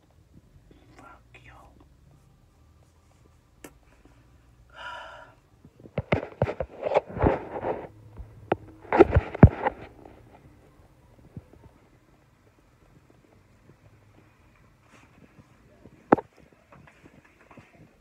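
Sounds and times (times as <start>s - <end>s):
phone being handled: 5.9s - 10.4s.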